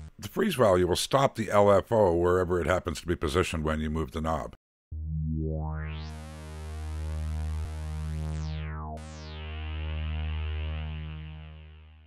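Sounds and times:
synthesizer bass note with filter wobble: 0:04.9 - 0:12.0.

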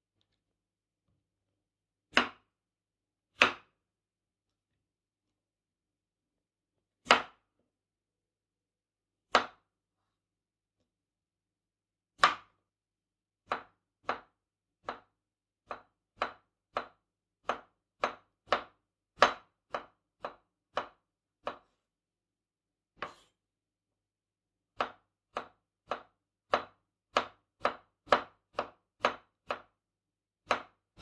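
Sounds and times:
knife slicing on cutting board: 0:23.0 - 0:23.4.

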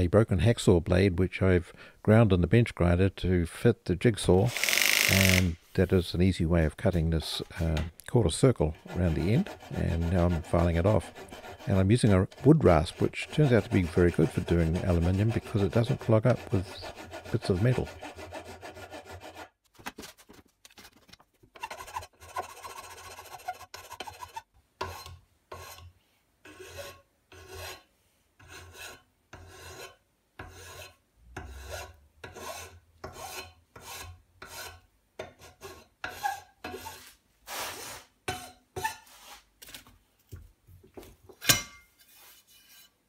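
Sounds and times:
rasp filing metal bar: 0:08.6 - 0:19.5, 0:21.6 - 0:25.9, 0:26.5 - 0:37.1.

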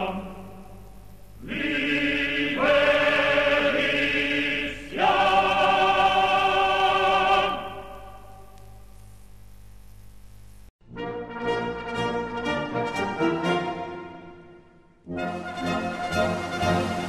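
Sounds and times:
choir singing held notes: 0:00.0 - 0:00.8, 0:01.4 - 0:08.5, 0:11.6 - 0:17.0.

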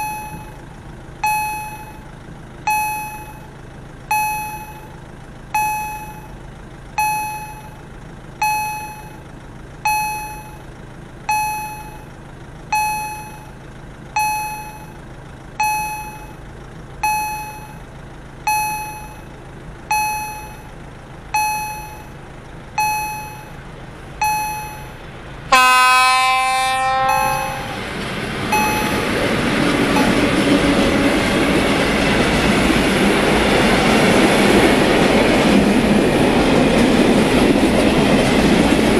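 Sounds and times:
warning bell dinging: 0:00.0 - 0:00.6, 0:01.2 - 0:06.4, 0:07.0 - 0:07.8, 0:08.4 - 0:10.7, 0:11.3 - 0:12.1, 0:12.7 - 0:15.0, 0:15.6 - 0:22.2, 0:22.8 - 0:23.6, 0:24.2 - 0:27.8, 0:28.5 - 0:29.2
freight train rumbling past: 0:25.0 - 0:38.9
locomotive horn blast: 0:25.5 - 0:28.0.

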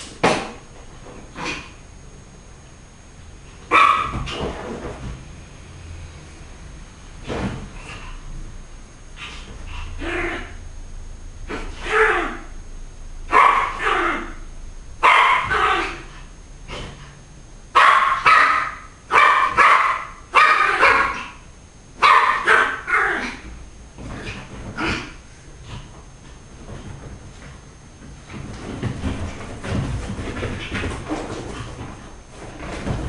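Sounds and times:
small dog barking: 0:03.7 - 0:04.4, 0:13.3 - 0:14.4, 0:15.0 - 0:16.1, 0:17.7 - 0:21.4, 0:22.0 - 0:23.5.

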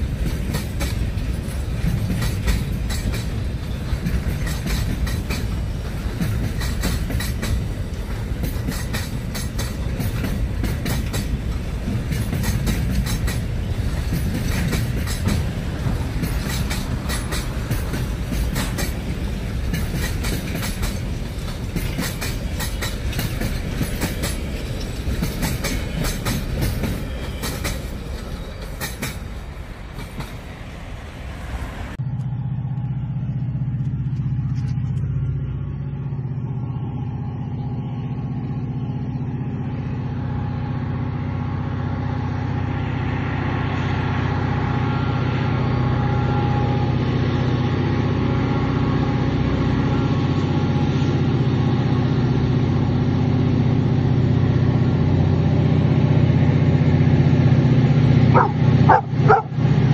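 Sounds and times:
wheels clacking over rail joints: 0:00.0 - 0:35.4, 0:57.5 - 0:59.9
train wheels rumbling on rails: 0:00.0 - 0:59.9.

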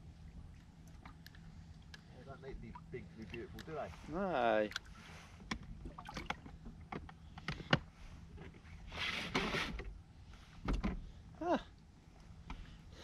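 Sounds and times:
water lapping against boat: 0:04.7 - 0:06.9.

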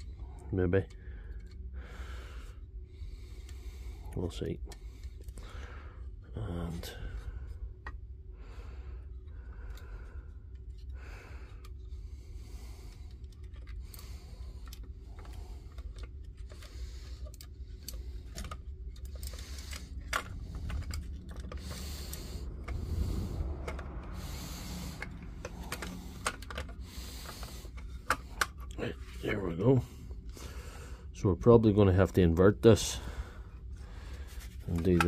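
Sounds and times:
steady low hum: 0:00.0 - 0:35.0
plastic parts clicking and rubbing: 0:09.1 - 0:30.5, 0:33.4 - 0:35.0.

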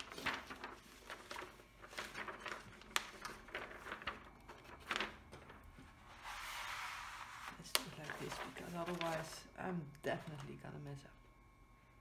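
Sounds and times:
cover sheet rustling and crinkling: 0:00.0 - 0:09.5.

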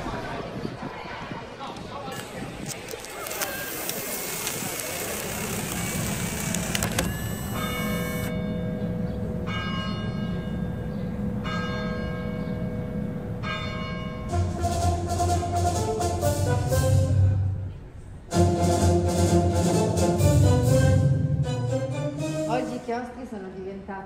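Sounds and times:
outdoor street noise: 0:00.0 - 0:24.0
church bell tolling: 0:07.6 - 0:15.0
music: 0:14.2 - 0:23.4.

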